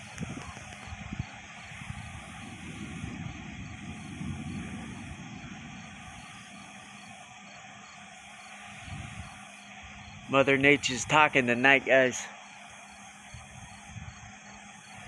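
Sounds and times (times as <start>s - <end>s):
distant thunder rumble: 0.0s - 7.2s
night insects chirping: 0.0s - 15.0s.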